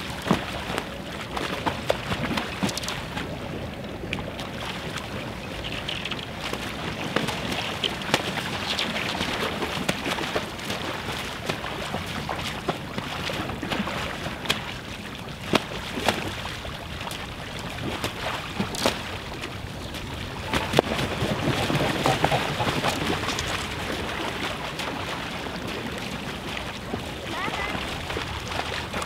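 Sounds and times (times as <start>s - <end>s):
wings beating on water: 0.0s - 3.4s, 4.3s - 29.0s
water splashing: 0.0s - 29.0s
sharp slaps on water: 6.4s - 14.8s, 15.4s - 16.4s, 17.8s - 19.2s.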